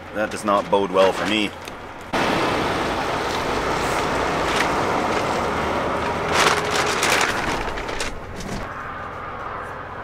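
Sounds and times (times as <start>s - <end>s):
truck engine running: 1.6s - 9.2s.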